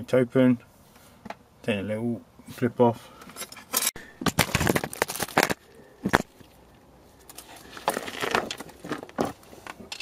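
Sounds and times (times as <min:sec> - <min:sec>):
rustling handling noise: 0:03.2 - 0:10.0.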